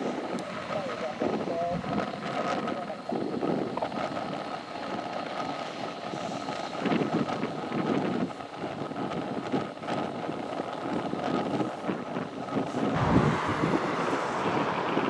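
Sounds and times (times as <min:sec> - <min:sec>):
wind buffeting microphone: 0:00.0 - 0:15.0
jet engines running: 0:10.6 - 0:15.0.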